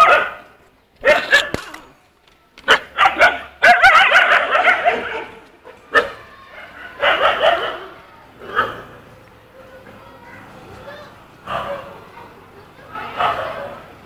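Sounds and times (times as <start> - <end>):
dogs barking: 0.0 - 1.6, 2.6 - 9.1, 11.4 - 12.1, 12.9 - 14.0.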